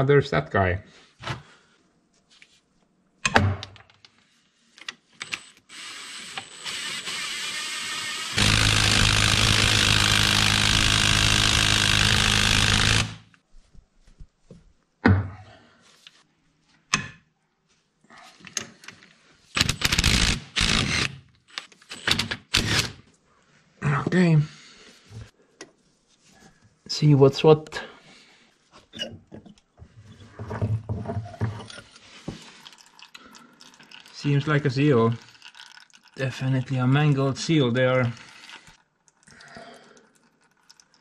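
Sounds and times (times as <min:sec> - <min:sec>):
cordless drill whining: 0:05.2 - 0:13.3, 0:19.7 - 0:21.2.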